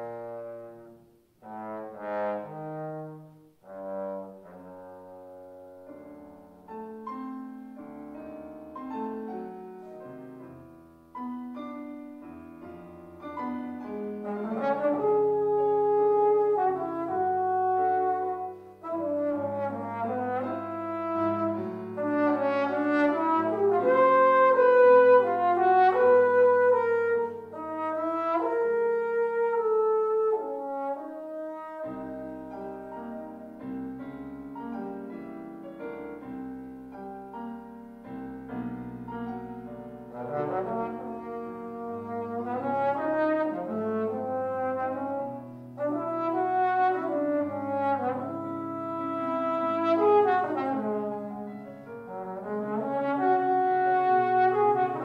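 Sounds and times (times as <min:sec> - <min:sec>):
trombone solo: 0:00.0 - 0:05.9, 0:13.8 - 0:33.6, 0:40.1 - 0:55.0
piano accompaniment: 0:00.0 - 0:55.0.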